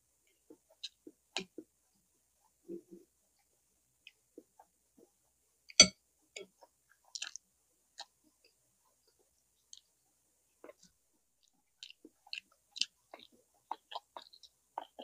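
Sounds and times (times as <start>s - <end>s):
mouth clicks and smacks: 6.6s - 7.4s, 10.6s - 15.0s.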